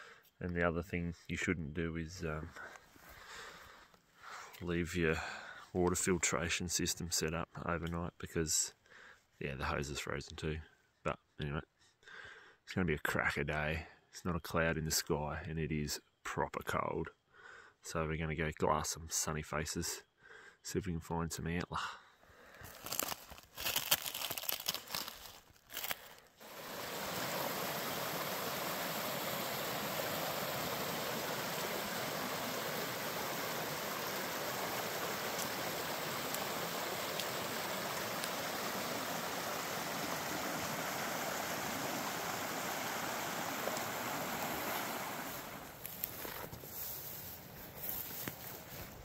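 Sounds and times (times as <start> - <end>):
plastic bag with ice crackling: 22.6 - 26.4
creek running over rocks: 22.6 - 46.7.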